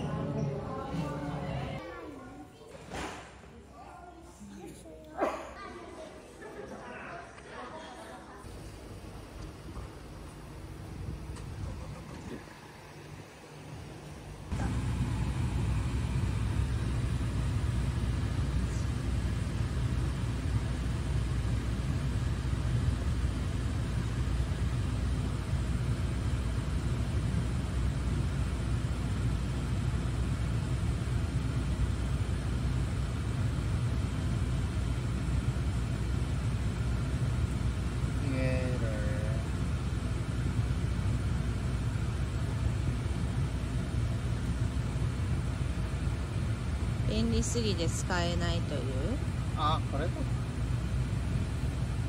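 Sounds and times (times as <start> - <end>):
low rumble with hiss in car cabin: 0.0 - 2.3, 8.3 - 52.0
car cabin rumble: 13.8 - 19.2.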